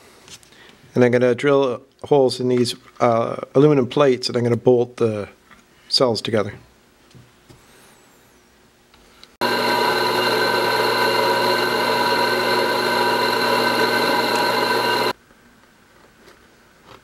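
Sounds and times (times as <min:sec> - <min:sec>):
drill press motor hum and whine: 0:09.4 - 0:15.2.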